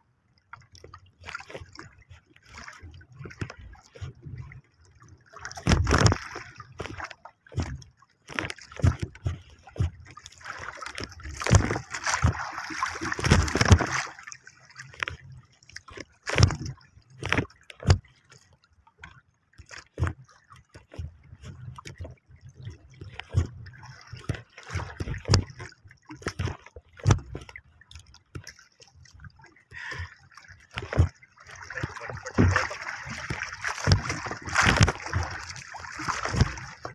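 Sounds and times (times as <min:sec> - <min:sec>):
water sloshing against hull: 0:00.0 - 0:36.9
knocks on boat: 0:05.6 - 0:06.2, 0:27.0 - 0:27.4, 0:30.8 - 0:36.9.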